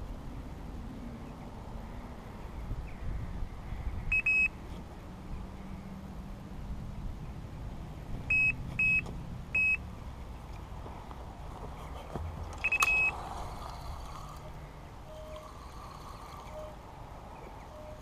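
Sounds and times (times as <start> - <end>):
bite alarm bleeps: 12.6 - 13.1.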